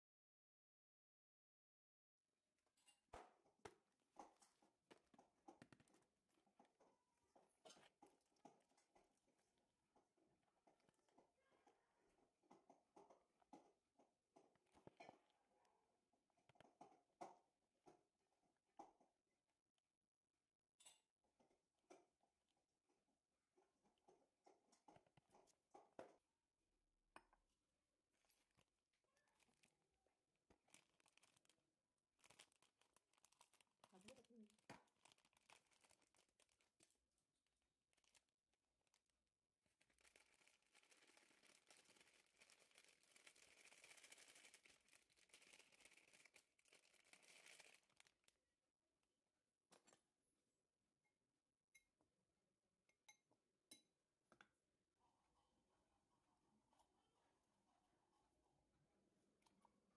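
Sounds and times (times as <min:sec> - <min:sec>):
plastic packet crinkling: 0:30.5 - 0:37.0, 0:37.9 - 0:39.1, 0:39.7 - 0:48.3.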